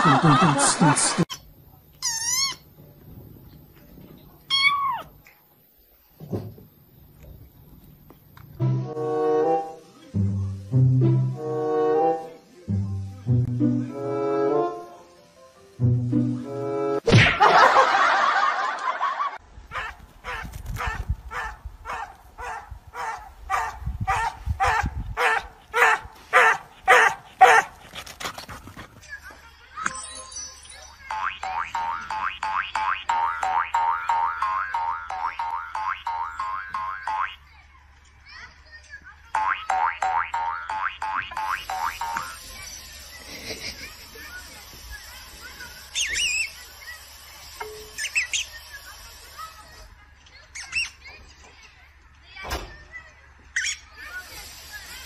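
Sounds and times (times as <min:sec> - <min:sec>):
small dog yapping: 0:04.5 - 0:05.1, 0:19.7 - 0:28.0
electronic chirps and tweets: 0:47.7 - 0:48.7.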